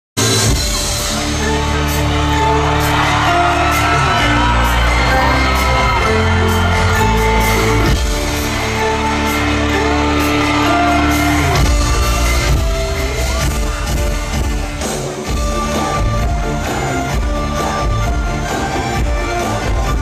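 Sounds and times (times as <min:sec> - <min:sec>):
live pop band playing: 0:00.2 - 0:20.0
crowd shouting: 0:00.8 - 0:16.9.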